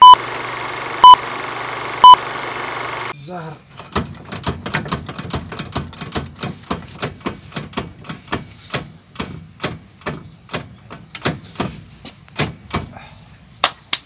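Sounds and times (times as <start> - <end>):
wheel knocking clunks: 3.8 - 12.9.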